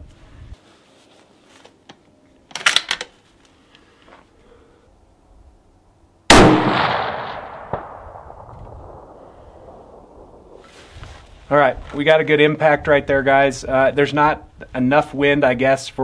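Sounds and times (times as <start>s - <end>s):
rifle shot with echo: 6.3s - 10.7s.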